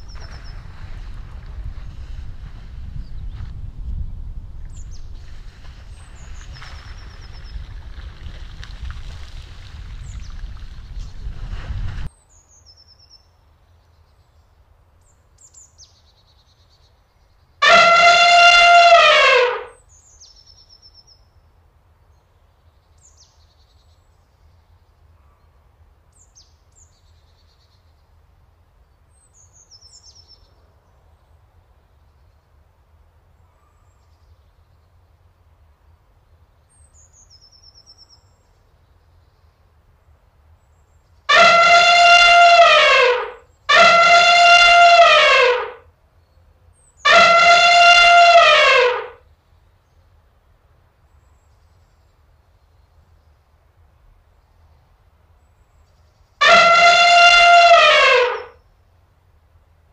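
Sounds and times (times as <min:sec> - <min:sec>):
elephant trumpeting: 0:17.6 - 0:19.7, 0:41.3 - 0:45.8, 0:47.1 - 0:49.2, 0:56.4 - 0:58.5.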